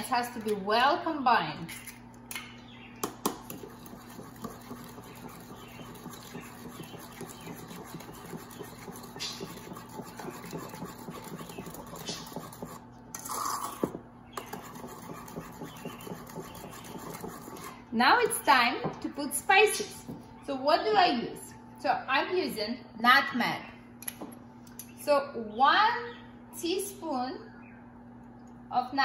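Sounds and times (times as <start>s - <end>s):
spoon scraping batter bowl: 3.2s - 18.4s.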